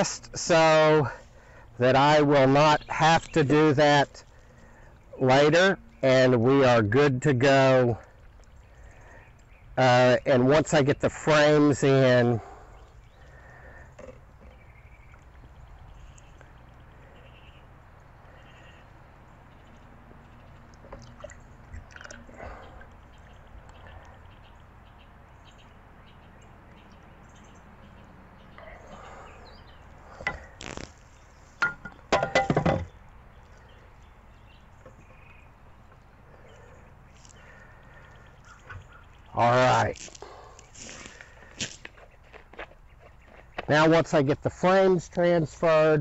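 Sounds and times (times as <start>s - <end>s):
faint bird chirps: 12.4s - 20.7s, 32.9s - 39.4s
plastic container and wood knocks: 31.6s - 32.9s.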